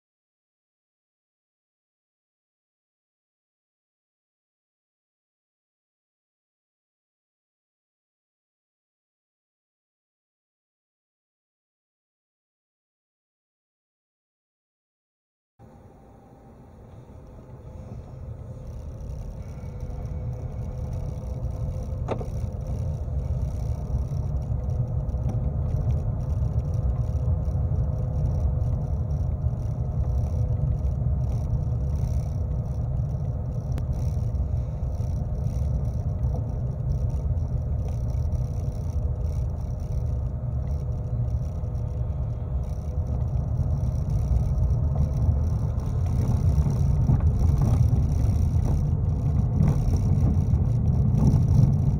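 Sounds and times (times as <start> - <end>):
faint steady hum: 15.6 - 51.9
road and tyre rumble: 15.6 - 51.9.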